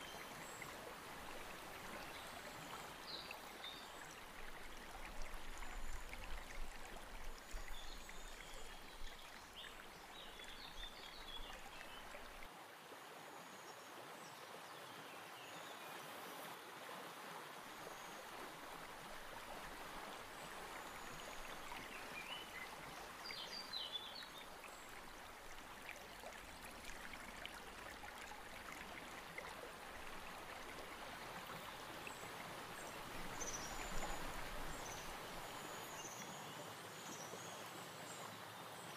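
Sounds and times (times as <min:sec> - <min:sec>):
river water rushing: 0:16.6 - 0:36.0.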